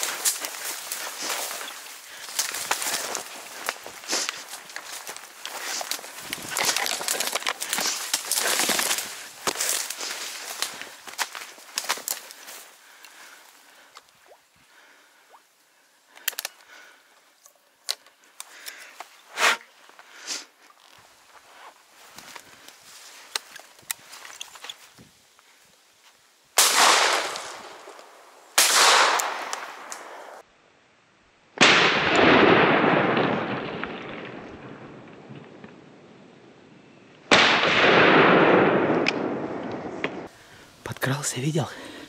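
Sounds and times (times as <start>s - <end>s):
rustling through brush: 0.0s - 15.2s, 15.8s - 30.4s
shotgun shots echoing: 26.6s - 27.9s, 28.6s - 30.0s, 31.6s - 34.4s, 37.3s - 40.3s.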